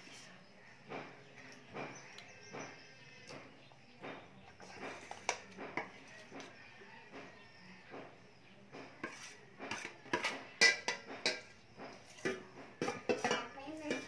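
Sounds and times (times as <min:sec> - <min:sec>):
utensil scraping metal bowl: 0:04.6 - 0:06.6, 0:08.9 - 0:14.0.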